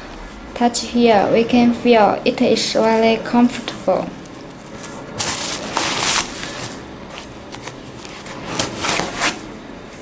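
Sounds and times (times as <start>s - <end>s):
hands rustling a knit sneaker: 4.4s - 9.1s.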